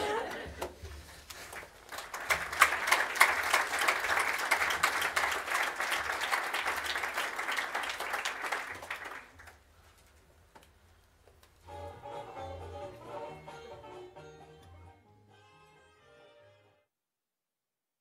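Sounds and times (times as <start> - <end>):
audience applauding: 1.4 - 9.7.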